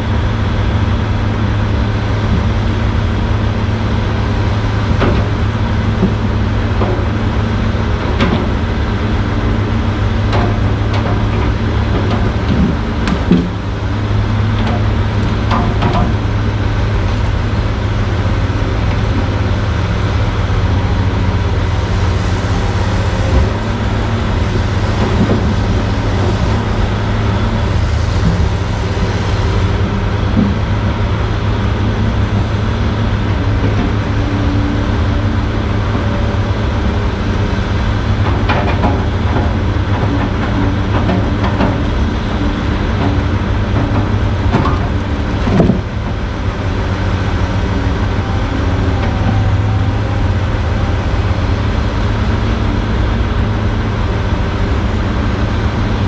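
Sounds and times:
diesel machinery droning: 0.0s - 56.0s
logs knocking and clunking: 4.9s - 7.2s, 8.0s - 8.6s, 10.3s - 13.7s, 14.5s - 16.3s, 24.9s - 26.4s, 30.2s - 30.7s, 38.2s - 42.0s, 42.8s - 46.2s.

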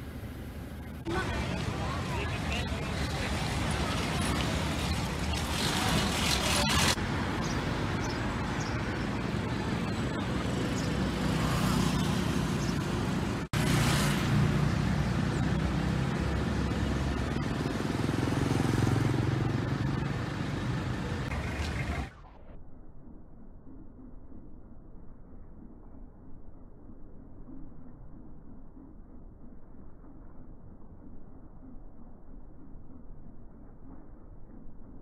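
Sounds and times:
vehicles passing: 0.0s - 22.4s
motorcycles passing: 0.8s - 22.2s.

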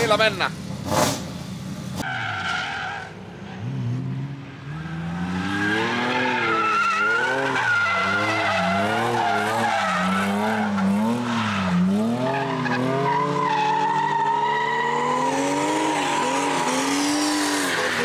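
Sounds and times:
car engine at high revs: 3.6s - 13.4s, 14.2s - 18.0s.

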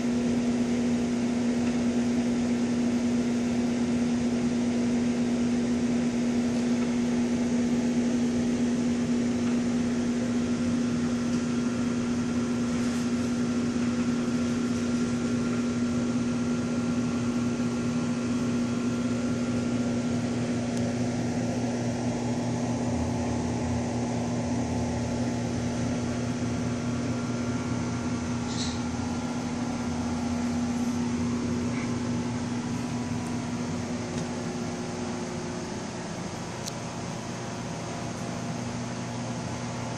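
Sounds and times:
aquarium pumps humming: 0.0s - 39.9s.

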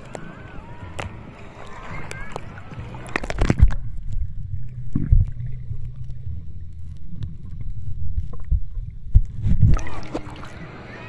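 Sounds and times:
underwater water rumble: 0.0s - 11.0s
dull underwater thumps: 3.0s - 10.4s.

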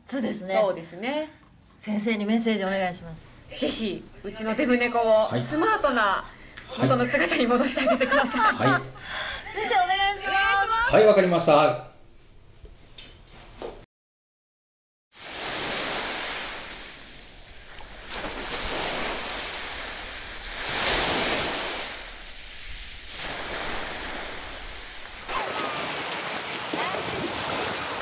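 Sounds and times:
sea surf washing onto beach: 15.2s - 28.0s
swimmer splashing: 15.2s - 28.0s.

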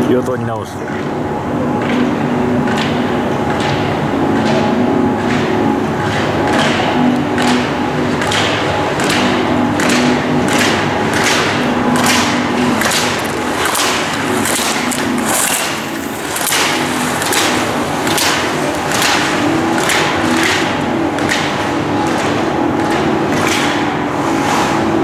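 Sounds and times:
skis scraping on snow: 12.9s - 20.4s.

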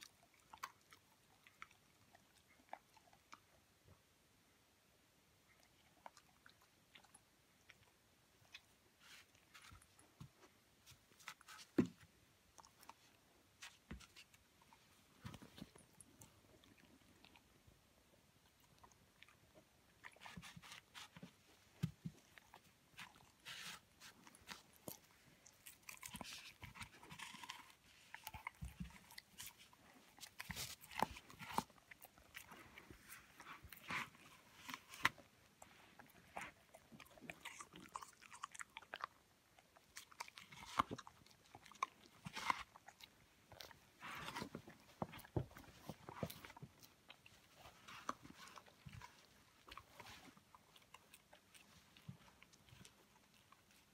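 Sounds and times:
dog chewing fruit crunching: 18.4s - 53.9s.

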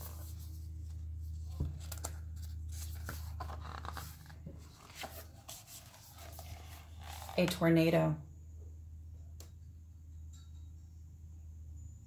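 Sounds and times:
book pages rustling: 0.0s - 7.6s.

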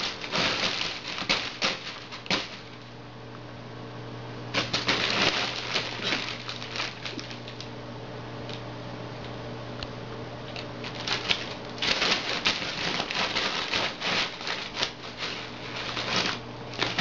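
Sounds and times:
cats scuffling paws and claws: 0.0s - 2.8s, 4.6s - 7.7s, 10.5s - 17.0s.

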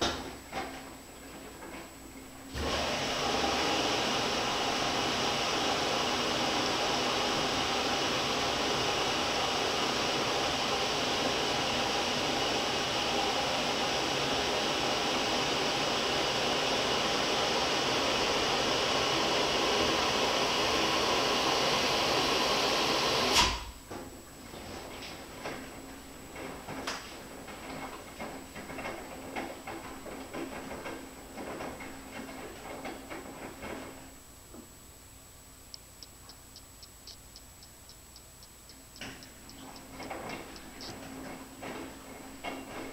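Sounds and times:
washing machine rushing noise: 0.0s - 34.2s, 39.7s - 42.9s.

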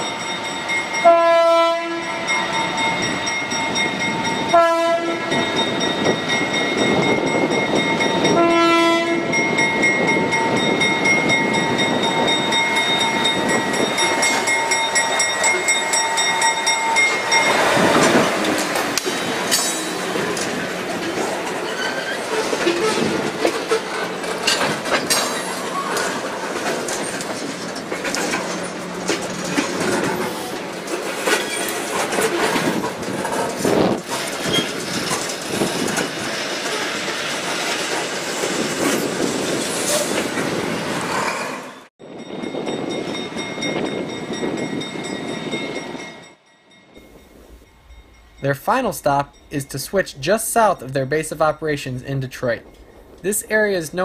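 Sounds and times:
freight train rolling past: 0.0s - 54.0s
steel wheels clicking on rails: 9.2s - 41.4s.

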